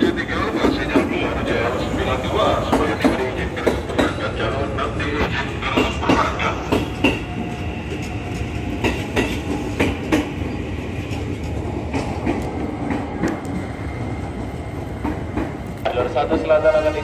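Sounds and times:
electric train rumbling past: 0.0 - 17.0
wheels clacking over rail joints: 5.6 - 13.6.

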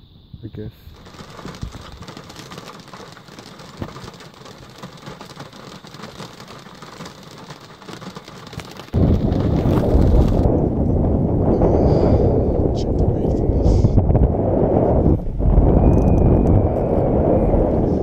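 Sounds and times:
wind buffeting microphone: 0.9 - 18.0
rain on window glass: 1.0 - 10.5.

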